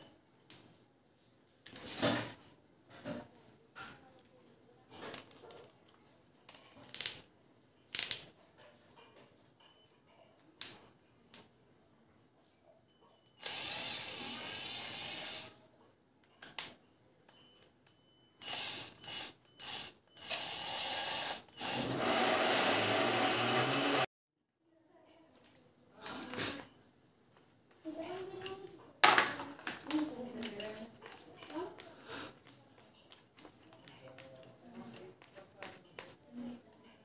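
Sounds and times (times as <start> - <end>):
cordless drill whirring: 13.4 - 15.5, 18.4 - 24.1.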